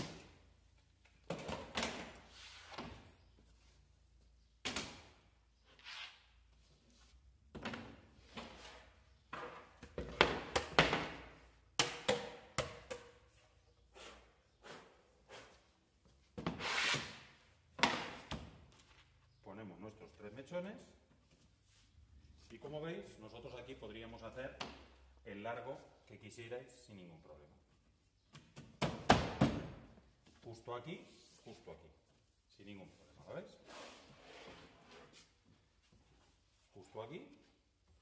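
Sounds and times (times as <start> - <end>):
wooden panels knocking and thumping: 28.4 - 30.0.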